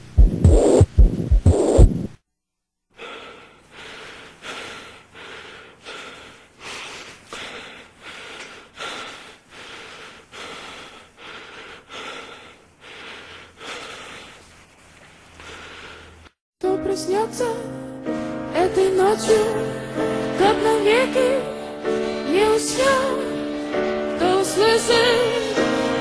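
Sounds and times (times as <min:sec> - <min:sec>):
heavy low heartbeat thumps: 0:00.0 - 0:02.2
rapid rhythmic breathing: 0:03.0 - 0:16.4.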